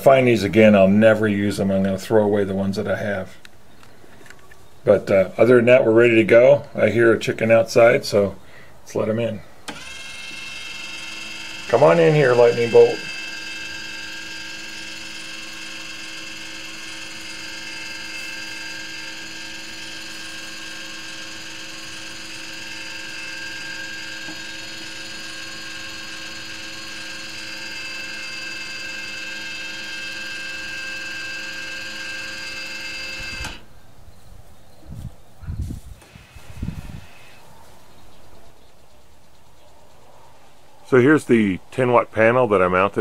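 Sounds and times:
electric motor whine: 9.6s - 33.7s, 36.0s - 37.5s.

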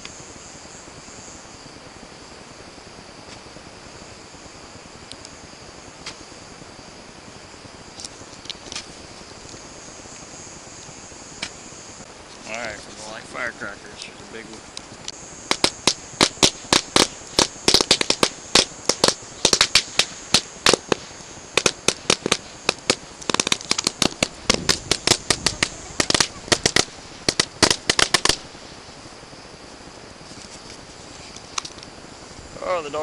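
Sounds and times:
firecrackers banging: 7.8s - 33.0s.

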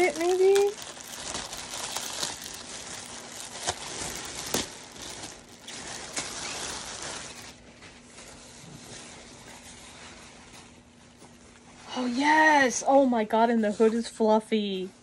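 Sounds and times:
plastic bag crinkling: 0.0s - 7.6s.

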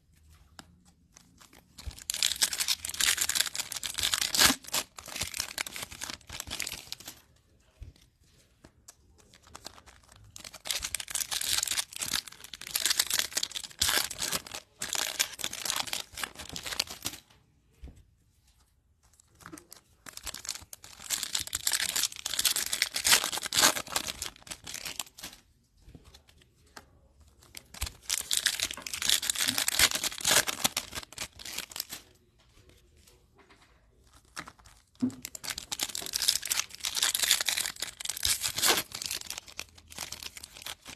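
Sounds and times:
wrappers being torn and crinkled: 1.3s - 7.2s, 9.2s - 17.2s, 19.1s - 25.4s, 27.4s - 32.0s, 34.1s - 40.9s.

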